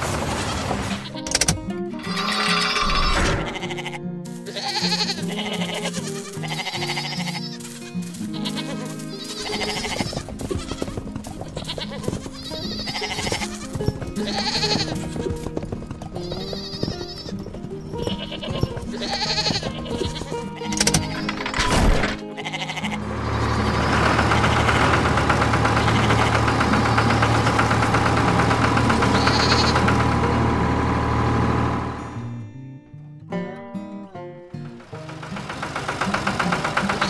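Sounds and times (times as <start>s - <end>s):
background music: 0.8s - 37.0s
sheep bleating: 2.0s - 15.4s, 16.2s - 21.6s, 22.2s - 27.3s, 28.7s - 29.9s.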